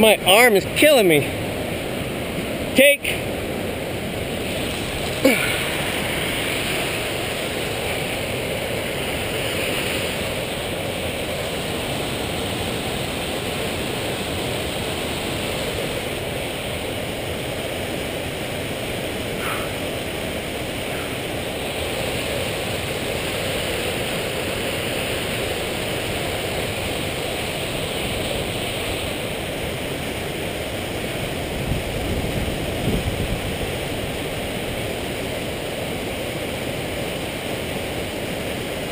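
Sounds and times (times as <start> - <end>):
creek water rushing: 0.0 - 38.9.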